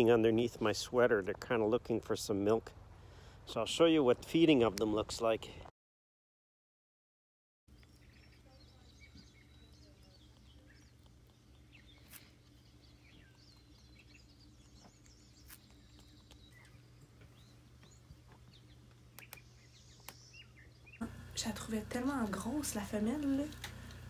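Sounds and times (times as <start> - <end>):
small animals chirping: 7.7 - 21.1
steady low hum: 7.7 - 24.0.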